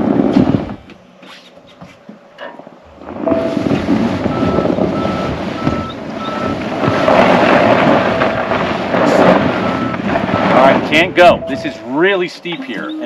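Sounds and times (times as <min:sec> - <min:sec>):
wind rush on microphone: 0:00.0 - 0:00.9, 0:02.9 - 0:11.7
tyres churning on snow: 0:02.9 - 0:13.0
short high beeps: 0:11.4 - 0:11.8.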